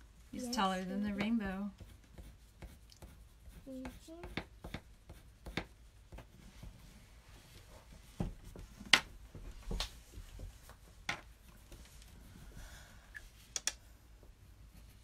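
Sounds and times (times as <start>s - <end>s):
brush and marker tapping paper: 0.9s - 6.8s.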